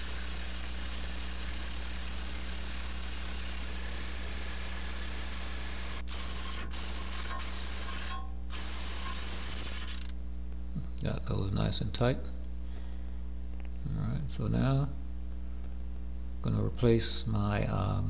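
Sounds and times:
impact wrench running: 0:00.0 - 0:10.2.

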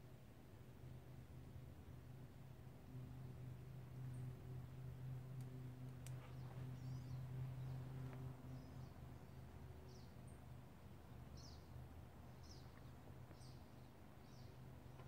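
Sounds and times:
low steady hum: 0:00.0 - 0:15.0
small bird chirping: 0:06.0 - 0:10.4, 0:11.2 - 0:14.6.

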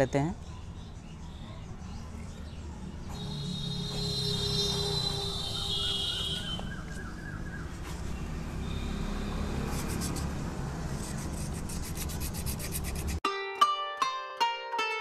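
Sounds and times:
abrasive paper rasping on brake shoes: 0:09.6 - 0:13.2.

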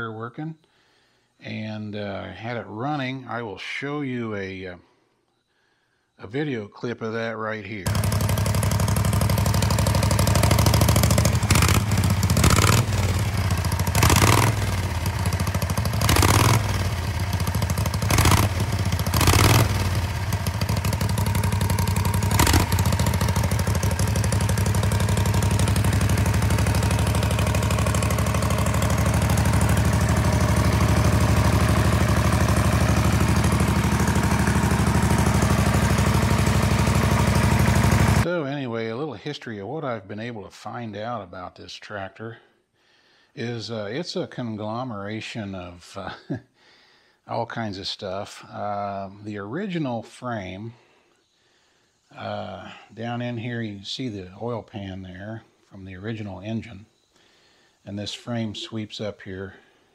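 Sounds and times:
auxiliary power unit engine running: 0:07.9 - 0:38.3.

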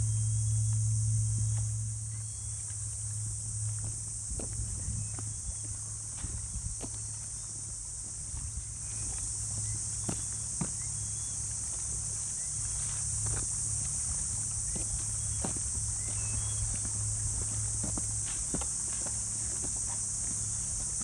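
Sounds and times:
insects droning: 0:00.0 - 0:21.0
footsteps on concrete: 0:03.7 - 0:10.9, 0:12.6 - 0:21.0.

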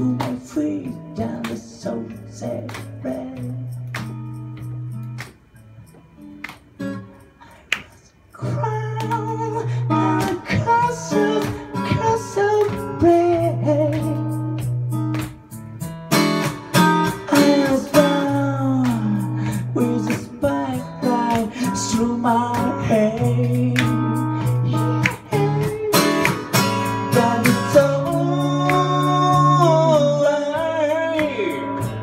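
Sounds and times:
acoustic guitar: 0:00.0 - 0:32.0
person singing: 0:17.1 - 0:32.0.

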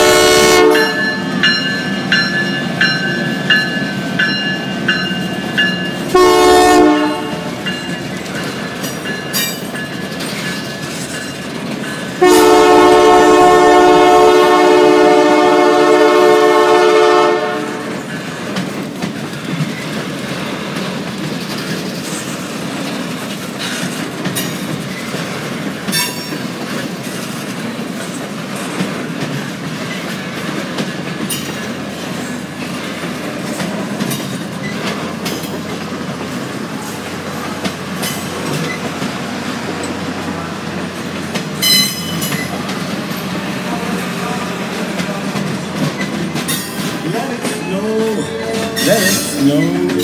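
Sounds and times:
train wheels clicking over rail joints: 0:07.0 - 0:12.8, 0:18.0 - 0:50.0.

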